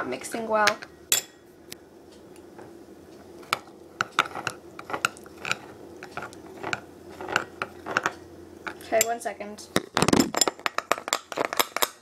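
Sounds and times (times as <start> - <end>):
spoon scraping glass bowl: 3.5 - 8.2.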